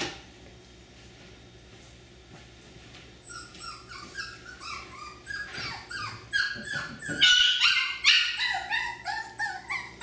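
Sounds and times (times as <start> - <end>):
puppies yipping: 3.2 - 10.0.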